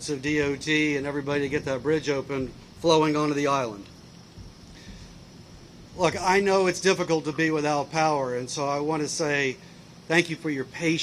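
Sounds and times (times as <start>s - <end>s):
low rumble: 0.0s - 7.4s
steady hiss: 0.0s - 11.0s.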